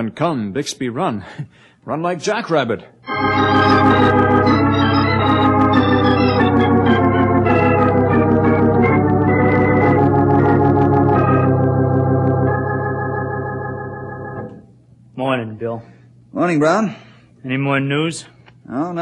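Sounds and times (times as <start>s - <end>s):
organ music: 3.0s - 14.9s.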